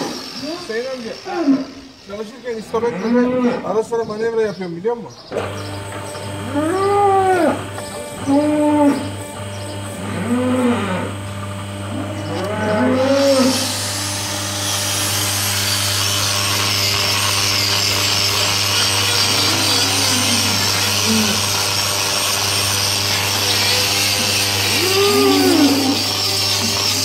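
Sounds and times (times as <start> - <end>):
angle grinder grinding hoof: 0.0 - 3.9, 5.3 - 27.0
cow lowing: 6.4 - 9.3, 10.0 - 13.8, 19.2 - 21.6, 24.7 - 26.3.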